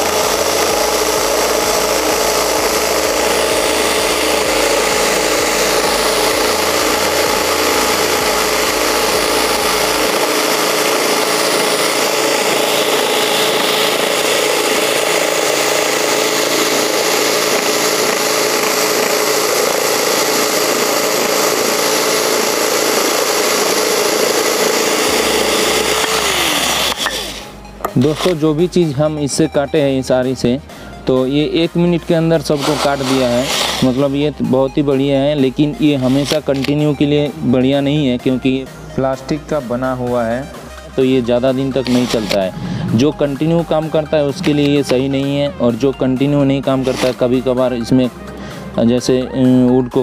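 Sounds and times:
saw blade rasping through wood: 0.0s - 28.6s, 32.2s - 34.4s, 35.7s - 37.4s, 40.5s - 45.5s, 46.6s - 48.5s
electric drill motor whine: 0.0s - 50.0s.

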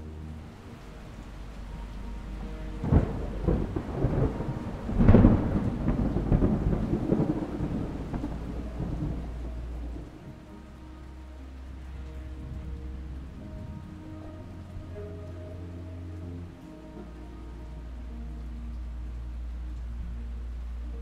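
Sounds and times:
steady rain: 0.0s - 21.0s
thunder crack and rumble: 1.2s - 11.3s.

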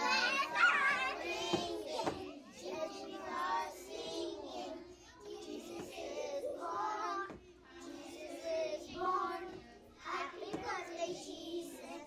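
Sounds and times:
children singing: 0.0s - 12.0s.

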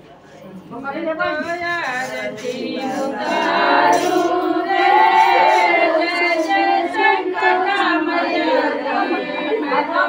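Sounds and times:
women singing together: 0.8s - 10.0s.

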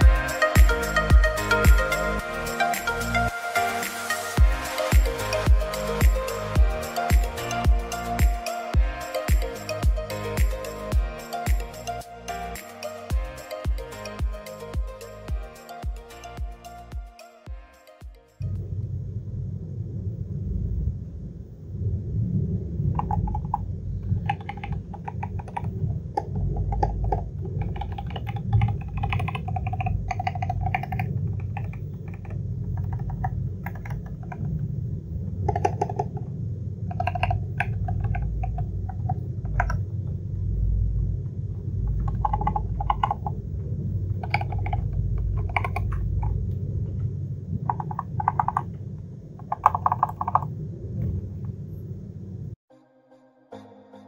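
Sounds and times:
low rumble: 18.4s - 52.6s
mechanical keyboard typing: 24.2s - 34.6s, 35.5s - 36.2s, 36.9s - 39.8s, 41.9s - 43.4s, 44.2s - 46.4s, 47.7s - 48.7s, 49.4s - 50.5s.

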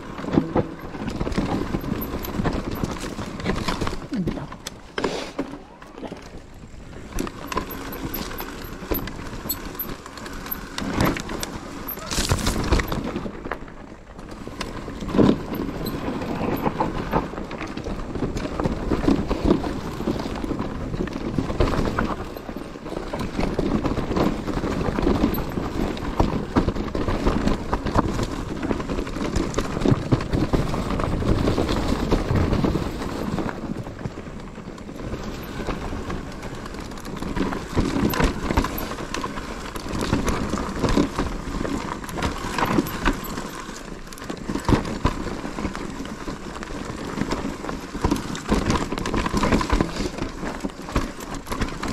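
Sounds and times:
mountain bike rattling on rough trail: 0.0s - 51.9s.

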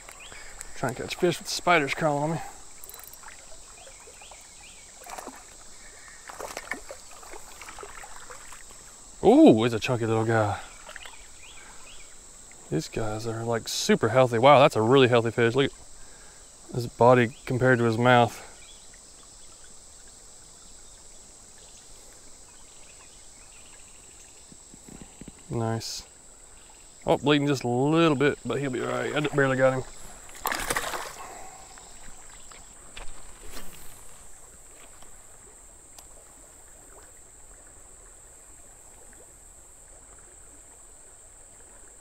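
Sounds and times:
creek water flowing: 0.0s - 42.0s
shallow stream running: 0.0s - 42.0s
high-pitched insect drone: 0.1s - 34.4s
faint clicks: 2.8s - 3.3s.

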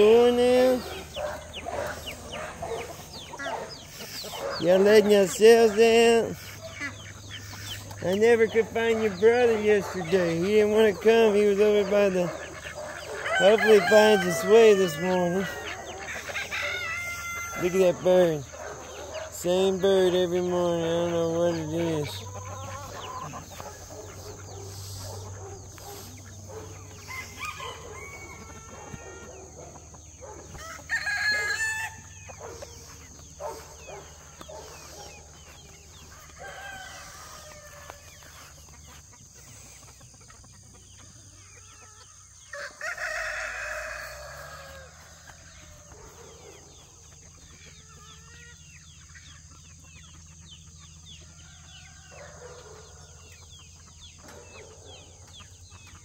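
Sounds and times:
chickens clucking: 0.0s - 56.0s
rooster crowing: 13.0s - 18.0s, 26.6s - 32.6s, 36.1s - 38.4s, 42.4s - 46.8s, 51.3s - 53.2s.

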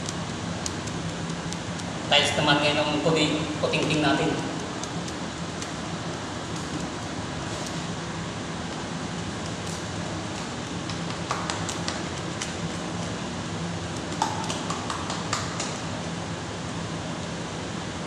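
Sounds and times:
low background hum: 0.0s - 18.0s
hands tapping floor tile: 3.8s - 7.8s, 9.2s - 13.2s, 13.9s - 16.0s.

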